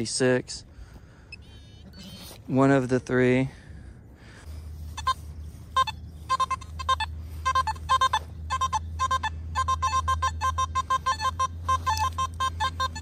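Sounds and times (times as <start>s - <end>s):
steady low rumble: 0.0s - 13.0s
metal detector beeping: 1.3s - 2.8s, 4.8s - 13.0s.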